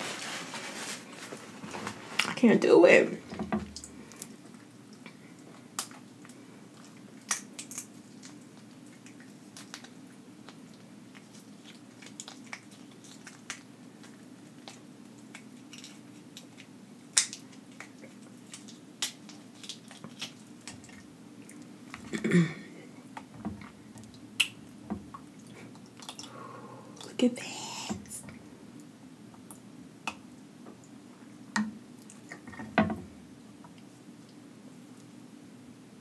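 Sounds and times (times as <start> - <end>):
shrimp shells cracking: 11.6 - 21.0.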